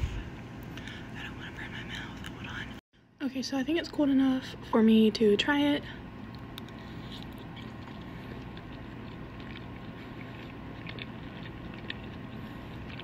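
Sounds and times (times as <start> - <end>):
steady background hum: 0.0 - 13.0
person chewing food: 6.2 - 13.0.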